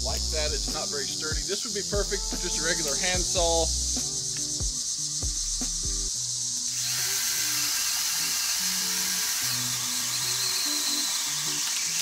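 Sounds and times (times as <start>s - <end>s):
background music with low notes: 0.0s - 12.0s
mini chainsaw buzzing: 6.6s - 12.0s.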